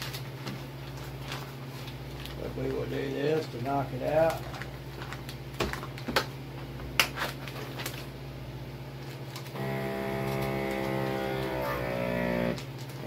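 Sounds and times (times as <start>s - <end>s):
plastic packaging crinkling: 0.0s - 8.2s, 8.9s - 9.6s, 12.4s - 13.0s
vacuum sealer pump droning: 9.5s - 13.0s.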